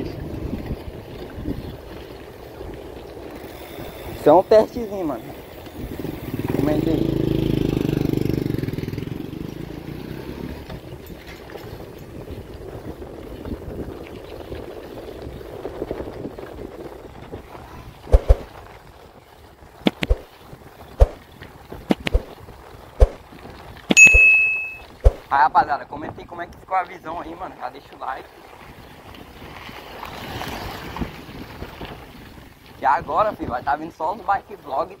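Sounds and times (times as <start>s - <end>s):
bicycle rolling on dirt road: 0.0s - 24.0s, 24.7s - 35.0s
wind: 0.0s - 35.0s
motorcycle engine passing: 5.7s - 12.3s.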